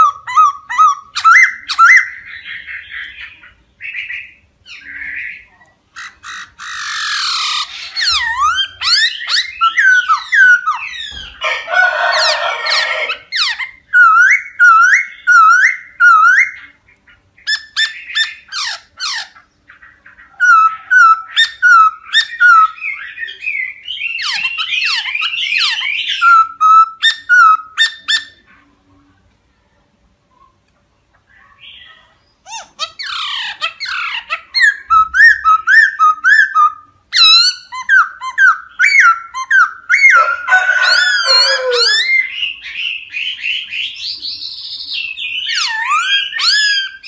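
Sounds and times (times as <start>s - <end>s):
bird singing whistled song: 0.0s - 5.5s, 7.9s - 11.4s, 13.4s - 16.7s, 20.4s - 28.4s, 34.6s - 40.2s
harsh bird chattering: 0.0s - 28.5s, 31.2s - 47.0s.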